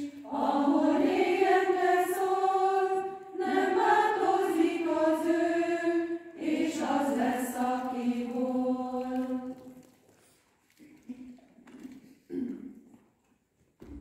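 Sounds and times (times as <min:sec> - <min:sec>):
women's choir singing a cappella: 0:00.0 - 0:09.8.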